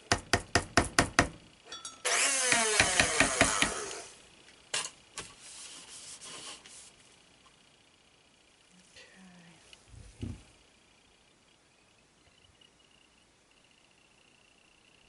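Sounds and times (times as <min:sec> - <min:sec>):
blender knocking down: 0:02.0 - 0:04.1.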